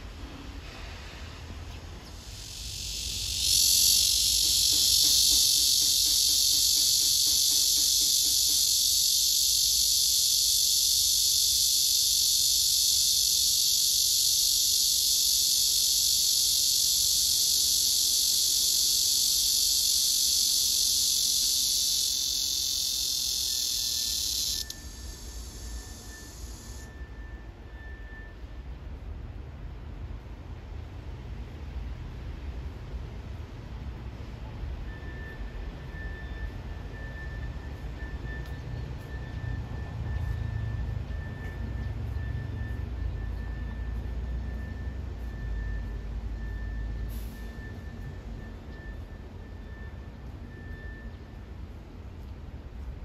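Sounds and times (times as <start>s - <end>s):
cicada buzzing: 2.0s - 28.0s.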